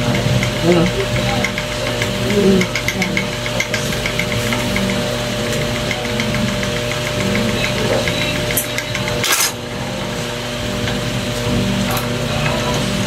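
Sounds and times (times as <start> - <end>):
electric motor humming: 0.0 - 13.0.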